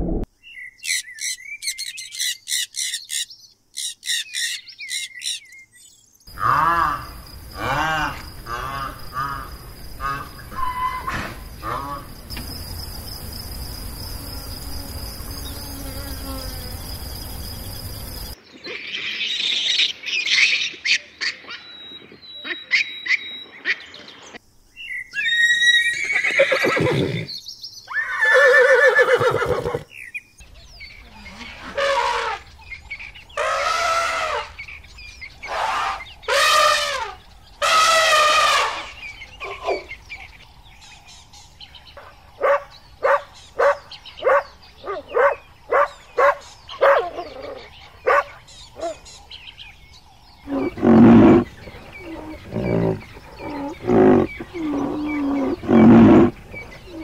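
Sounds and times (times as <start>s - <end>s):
loud low animal call: 6.3s - 12.2s, 50.4s - 57.0s
horses whinnying: 25.2s - 27.3s, 27.9s - 29.8s, 50.5s - 57.0s
short animal calls: 50.5s - 57.0s.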